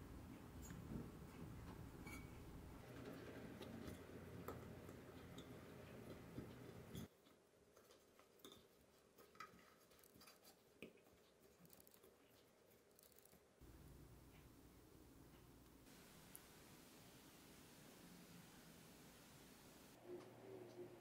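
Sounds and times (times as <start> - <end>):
low room hiss: 9.9 - 21.0.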